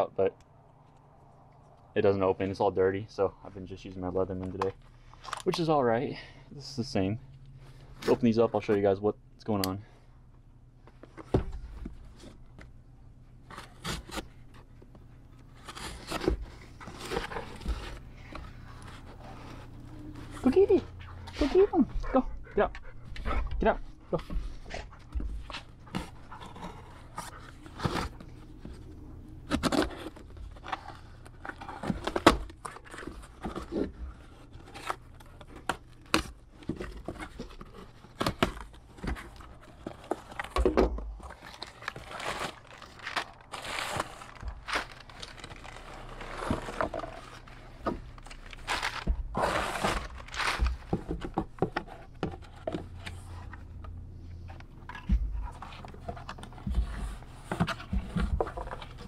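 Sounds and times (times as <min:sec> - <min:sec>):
tape and cardboard tearing: 0:13.4 - 0:21.5, 0:25.5 - 0:53.6
paper crinkling: 0:13.4 - 0:21.8, 0:41.2 - 0:53.8, 0:55.0 - 0:59.0.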